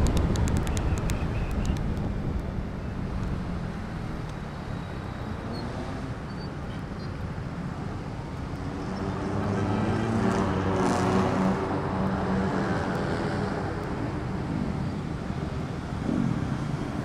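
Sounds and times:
wind noise on microphone: 0.0 - 5.0, 11.3 - 17.0
motorcycle engine hum: 0.0 - 8.9, 13.2 - 17.0.

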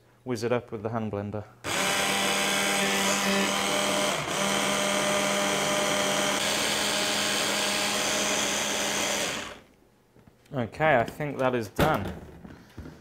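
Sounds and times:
hand blender motor whining: 1.7 - 9.7.

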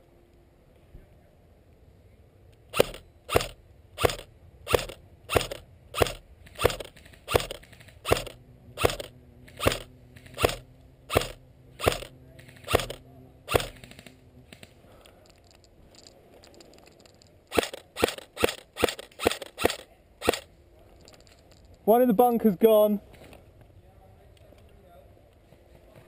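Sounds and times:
airsoft rifle single shots: 2.7 - 14.6, 17.5 - 20.5.

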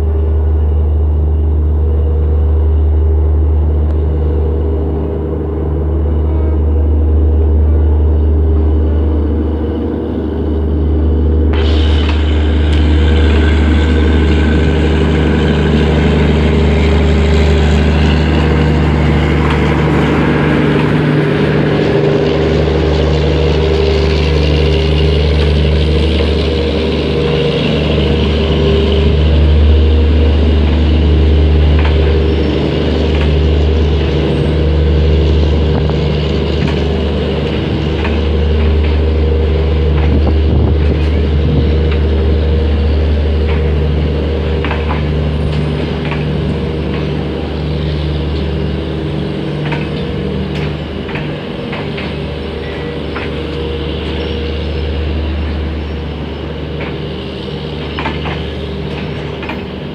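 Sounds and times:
diesel locomotive engine droning: 0.0 - 59.9
faint clicks from train wheels: 19.4 - 59.9.

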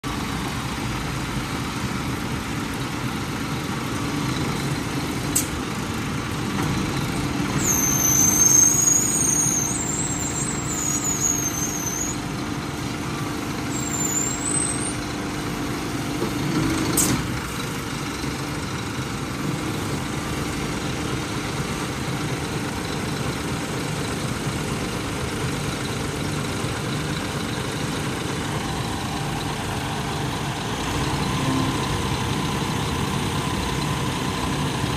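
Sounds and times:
diesel truck engine idling: 0.0 - 34.9
high squeaks: 7.6 - 12.2.

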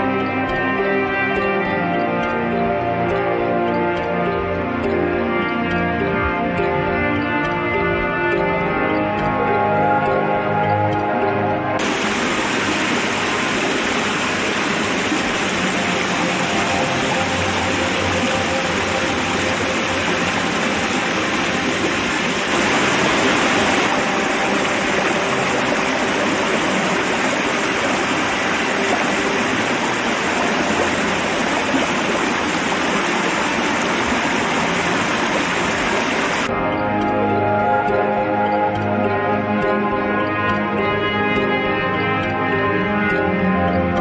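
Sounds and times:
stream water pouring over rocks: 11.8 - 36.5
waterfall splashing into pool: 11.8 - 36.5.

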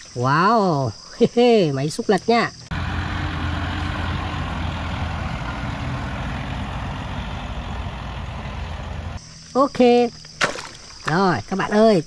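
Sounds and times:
tractor diesel engine running: 2.7 - 9.2.

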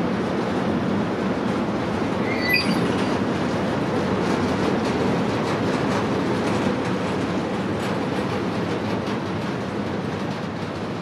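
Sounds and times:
freight train rumbling past: 0.0 - 11.0
high wheel squeal: 2.2 - 3.3.

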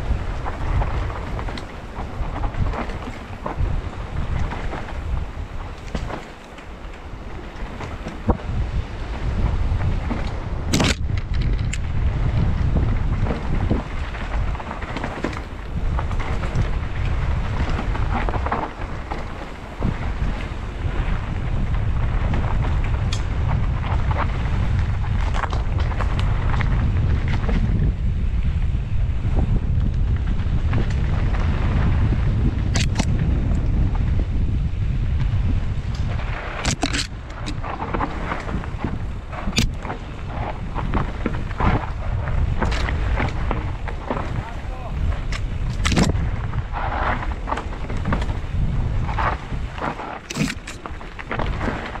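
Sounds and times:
bike tyre noise: 0.0 - 52.0
wind rumbling on microphone: 0.0 - 52.0.

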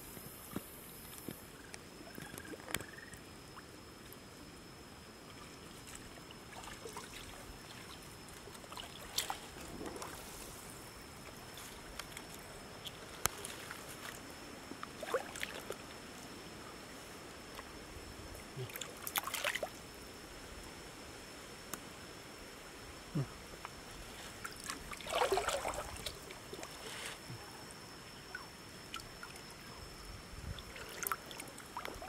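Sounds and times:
shallow water trickling and splashing: 5.3 - 16.3, 18.6 - 19.9, 24.0 - 27.2, 30.4 - 32.0.

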